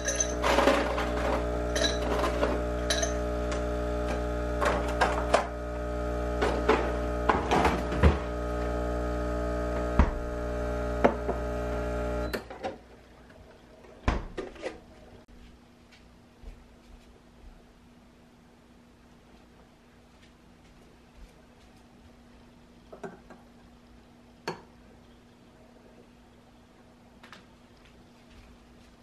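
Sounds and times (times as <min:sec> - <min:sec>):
espresso machine pump humming: 0:00.0 - 0:12.4.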